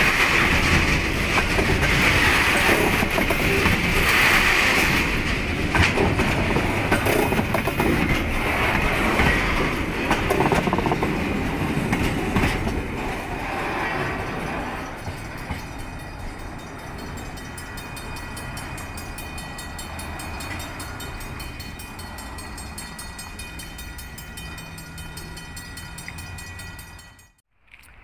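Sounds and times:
freight train rumbling over rails: 0:00.0 - 0:27.4.

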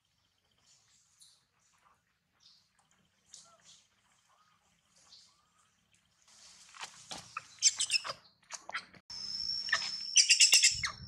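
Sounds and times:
baby monkey squealing: 0:07.6 - 0:08.2, 0:09.7 - 0:11.0.

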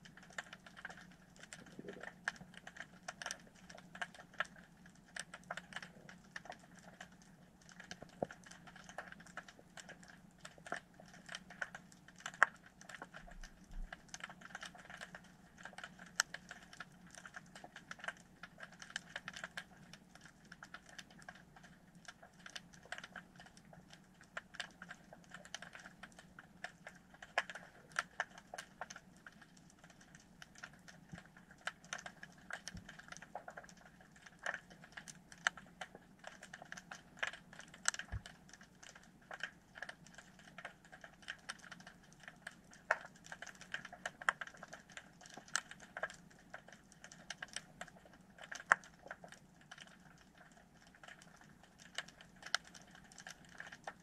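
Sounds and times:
underwater clicking and crackling: 0:00.0 - 0:54.0.

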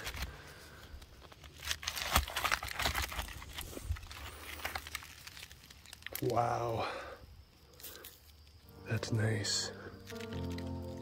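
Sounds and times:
rock fragments crunching by hand: 0:00.0 - 0:06.5, 0:10.0 - 0:11.0.

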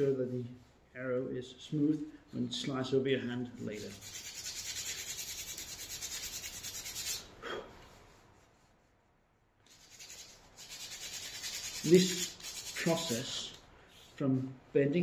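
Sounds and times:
sandpaper rubbing on wood: 0:03.6 - 0:07.3, 0:09.7 - 0:14.2.

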